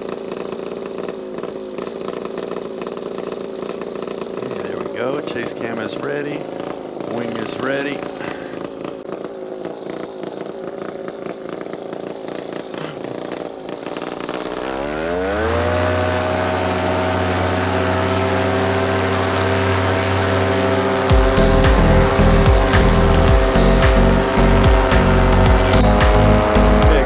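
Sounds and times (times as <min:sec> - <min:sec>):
paramotor engine revving: 0:00.0 - 0:27.0
low musical beat: 0:19.7 - 0:27.0.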